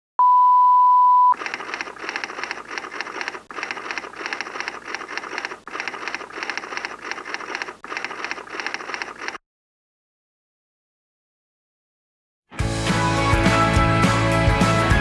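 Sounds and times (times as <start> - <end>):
loud steady beep: 0.2 - 1.4
typewriter key clatter: 1.4 - 9.4.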